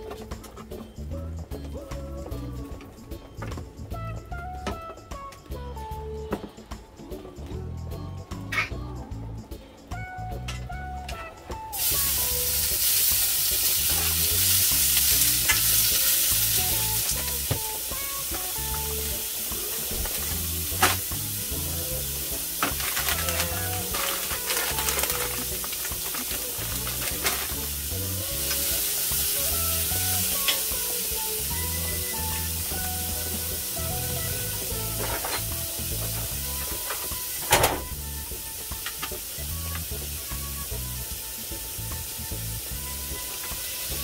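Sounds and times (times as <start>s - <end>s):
food sizzling in a skillet: 11.7s - 44.0s.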